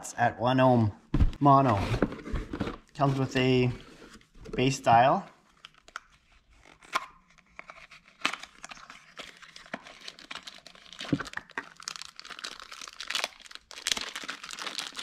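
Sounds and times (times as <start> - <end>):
plastic bag crinkling: 9.3 - 15.0.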